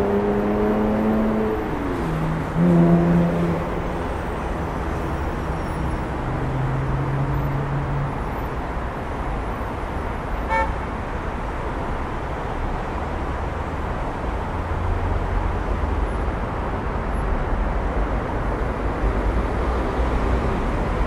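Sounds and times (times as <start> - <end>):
vehicle drone: 0.0 - 10.0
street traffic: 0.0 - 21.0.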